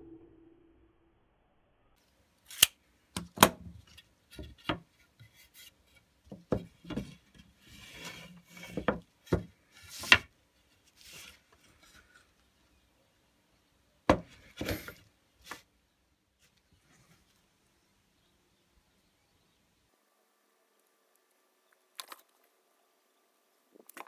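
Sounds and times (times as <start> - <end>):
wooden boards knocking: 6.3 - 7.2, 14.1 - 14.4
boards scraping together: 6.8 - 12.3.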